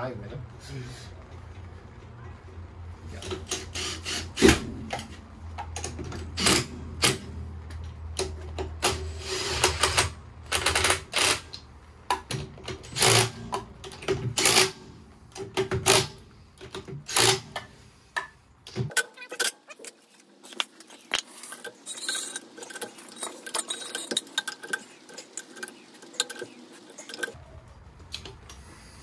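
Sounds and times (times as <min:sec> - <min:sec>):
impact wrench rattling bursts: 0:03.2 - 0:17.8.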